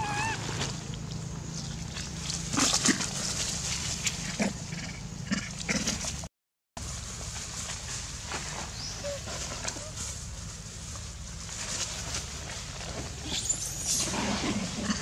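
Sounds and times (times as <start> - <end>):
monkeys calling and grunting: 0.0 - 0.8, 8.8 - 10.3
steady low hum: 0.0 - 15.0.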